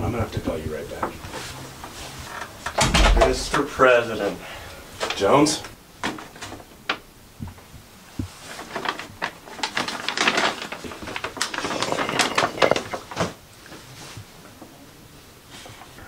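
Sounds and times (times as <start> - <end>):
paper bag crinkling: 8.4 - 13.4.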